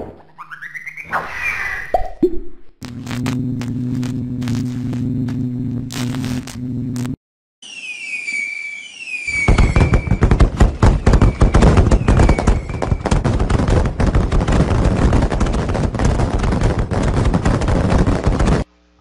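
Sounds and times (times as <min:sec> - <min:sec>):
firework bangs and crackling: 0:02.9 - 0:05.0, 0:07.6 - 0:18.7
falling firework whistle: 0:07.6 - 0:13.3.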